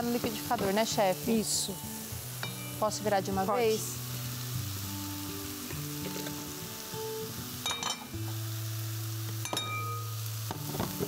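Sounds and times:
mushrooms sizzling in frying pan: 0:00.0 - 0:11.0
soft background music: 0:00.0 - 0:11.0
metallic clink: 0:07.6 - 0:08.1, 0:09.4 - 0:10.1.

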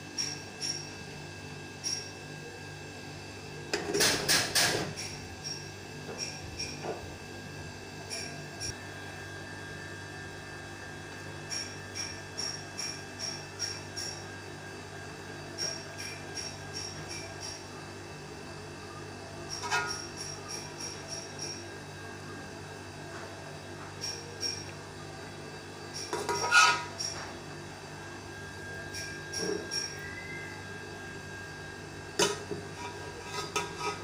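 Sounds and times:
metal spatula scraping pot: 0:26.1 - 0:26.9, 0:32.2 - 0:34.0.

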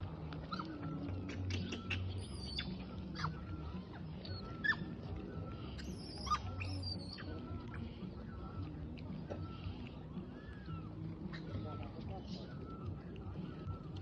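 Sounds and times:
high animal chirps and squeaks: 0:00.5 - 0:05.1, 0:05.7 - 0:07.8.

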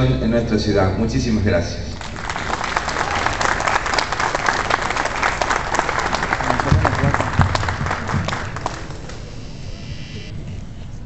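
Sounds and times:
audience applauding: 0:02.0 - 0:09.3
low thumps: 0:06.6 - 0:10.3.

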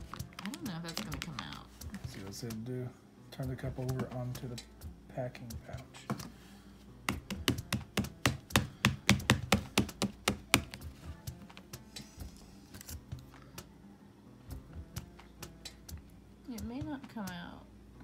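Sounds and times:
plastic cup clicking and tapping: 0:07.1 - 0:10.9.

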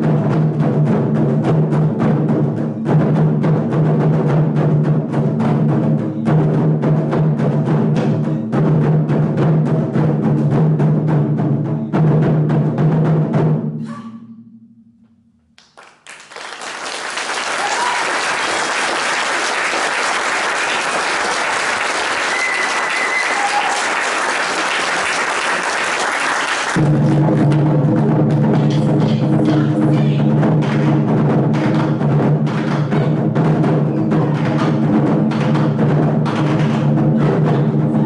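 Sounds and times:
taiko drums struck fast: 0:00.0 - 0:13.8, 0:17.6 - 0:25.7, 0:26.7 - 0:38.0
audience applauding: 0:15.6 - 0:26.8.

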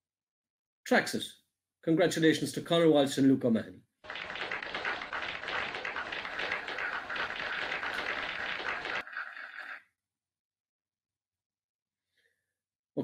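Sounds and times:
audience applause: 0:04.0 - 0:09.6.

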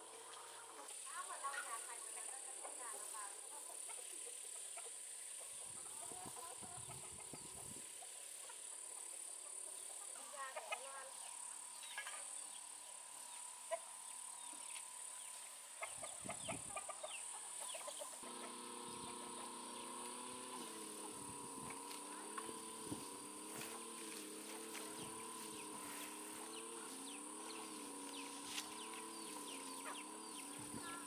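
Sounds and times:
chicken clucking: 0:00.1 - 0:31.0.

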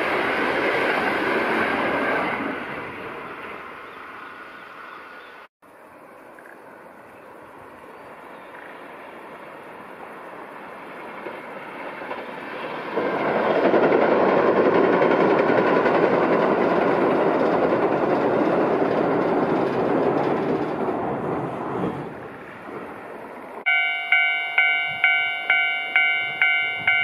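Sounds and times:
electric train crossing steel bridge: 0:00.0 - 0:27.0.

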